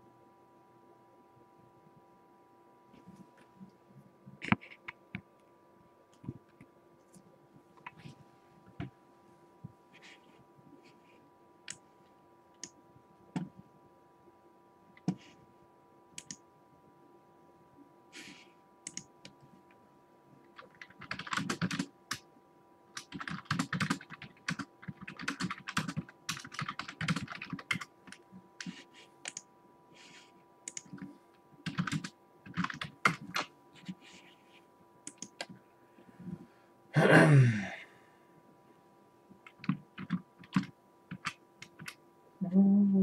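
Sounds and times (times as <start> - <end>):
typing on computer keyboard: 20.6 - 22.2, 23.0 - 29.4, 30.7 - 33.9, 39.5 - 42.0.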